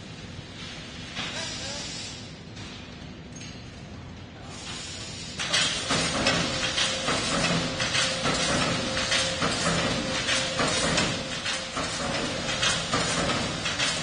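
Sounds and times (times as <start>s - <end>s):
spot welder clanking and crackling: 5.4s - 14.0s.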